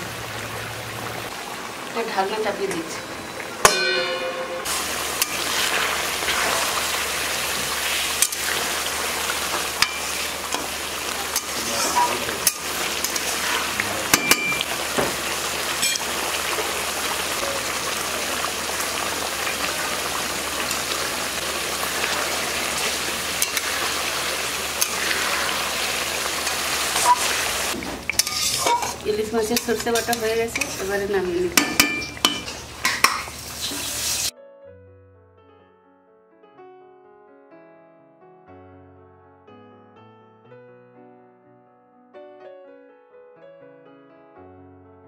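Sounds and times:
fish sizzling in a pan: 0.0 - 34.3.

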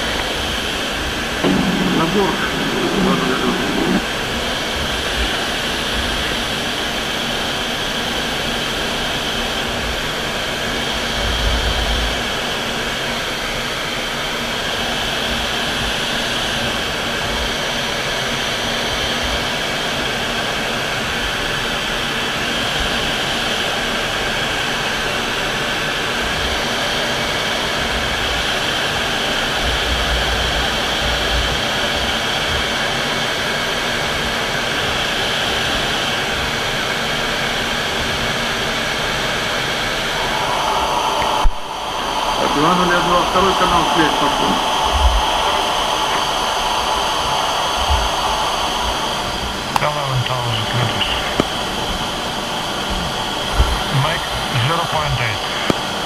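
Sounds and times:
jet fighter engines in flight: 0.0 - 56.0
brief low rumbles: 1.4 - 4.1.

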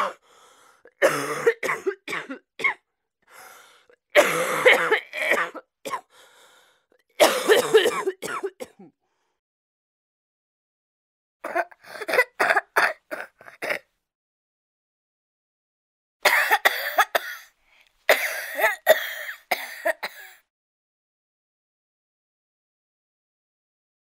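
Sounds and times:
person coughing: 0.0 - 0.2, 0.9 - 2.8, 4.2 - 6.1, 7.2 - 9.0, 11.4 - 13.9, 16.2 - 17.5, 18.1 - 20.4.

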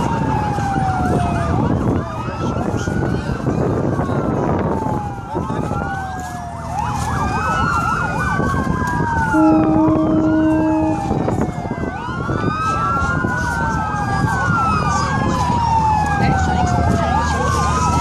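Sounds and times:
siren yelp pattern: 0.0 - 18.0
sirens wailing: 0.0 - 18.0
steady horn blast: 9.3 - 11.5.

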